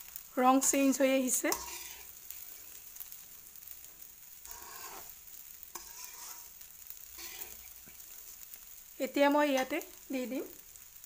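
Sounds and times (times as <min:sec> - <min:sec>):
rice sizzling in oil: 0:00.0 - 0:11.0
steel spoon scraping pot: 0:01.5 - 0:02.2, 0:04.5 - 0:05.1, 0:05.7 - 0:06.5, 0:07.2 - 0:07.7.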